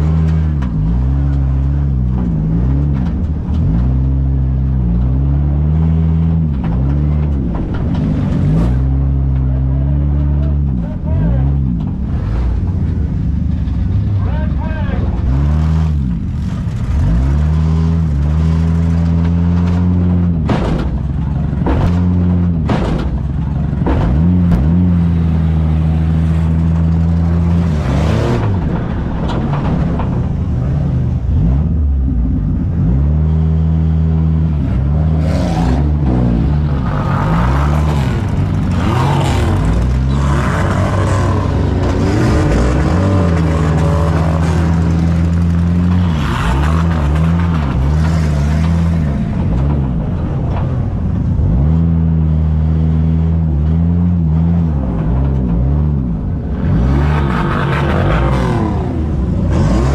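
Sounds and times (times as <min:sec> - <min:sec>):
car engines revving: 0:00.0 - 0:59.9
metal crashes of cars ramming: 0:16.2 - 0:32.8.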